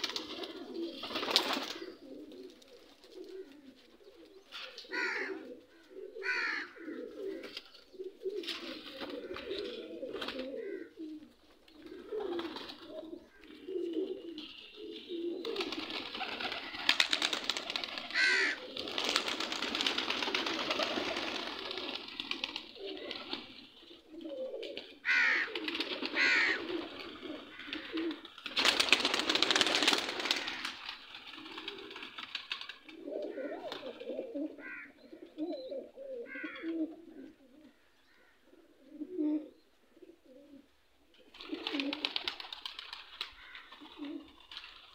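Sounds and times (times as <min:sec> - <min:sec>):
wings flapping: 0:00.0 - 0:03.7, 0:08.4 - 0:10.6, 0:11.7 - 0:14.1, 0:15.2 - 0:34.8, 0:41.3 - 0:44.9
pigeons cooing: 0:00.0 - 0:44.9.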